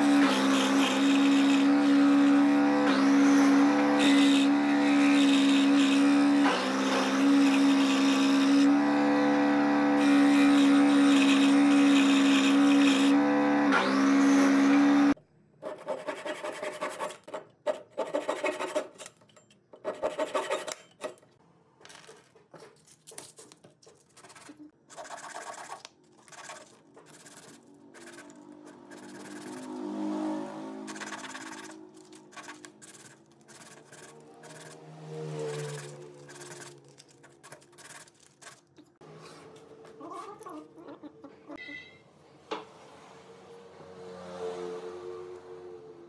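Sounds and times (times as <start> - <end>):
scroll saw motor cutting wood: 0.0 - 15.2, 24.9 - 40.5
hand saw cutting wood: 0.0 - 19.0, 24.2 - 39.3
wood rubbing on sandpaper: 24.1 - 29.8, 30.9 - 34.8.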